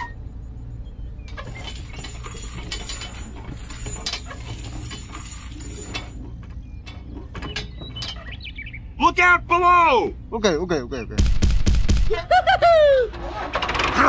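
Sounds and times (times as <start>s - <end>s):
steady low hum: 0.0s - 13.6s
small clinks of hard parts: 1.3s - 8.3s.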